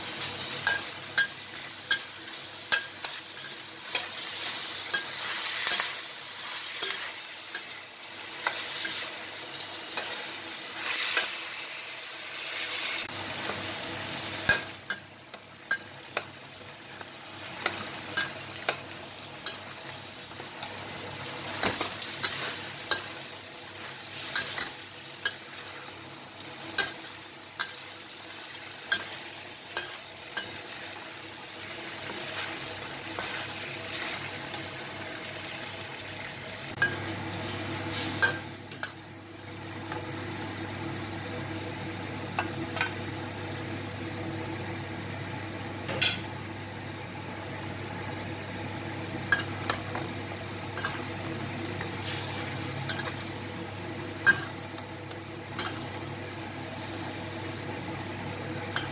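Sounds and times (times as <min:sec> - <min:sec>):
chicken sizzling in oil: 0:00.0 - 0:58.9.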